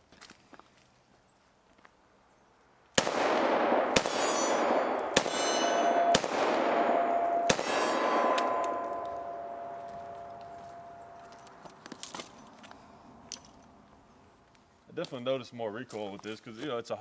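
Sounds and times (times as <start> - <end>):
revolver shots echoing: 3.0 - 11.1
steel targets ringing: 3.7 - 11.3.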